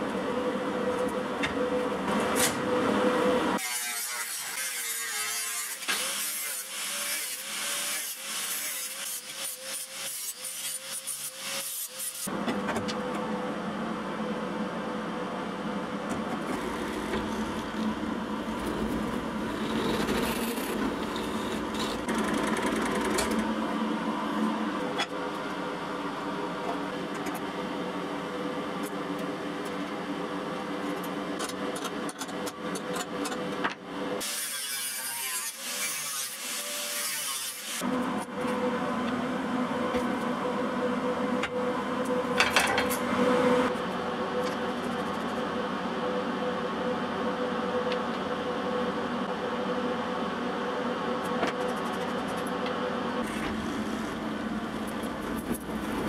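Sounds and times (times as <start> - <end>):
sawing and filing steel: 3.6 - 12.3, 18.5 - 22.6, 34.2 - 37.8.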